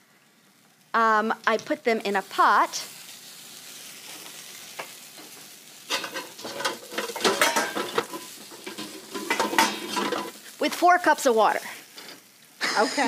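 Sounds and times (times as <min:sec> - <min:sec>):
onions sizzling in pan: 0:00.0 - 0:13.0
metal cookware clattering: 0:05.9 - 0:10.4.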